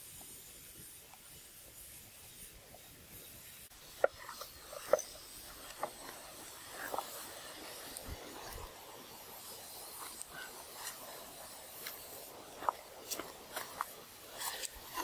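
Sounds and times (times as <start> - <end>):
faint fire hiss: 0.0 - 15.0
hollow wooden knocks and scrapes: 3.9 - 7.2.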